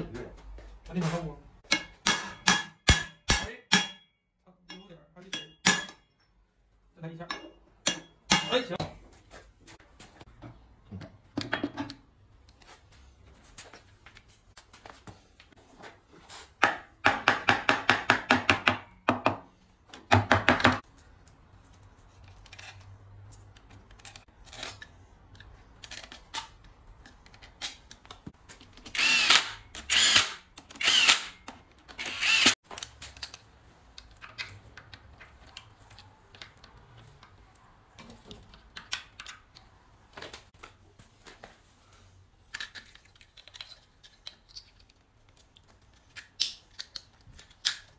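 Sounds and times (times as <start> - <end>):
power driver whining and clicking: 28.9 - 32.6.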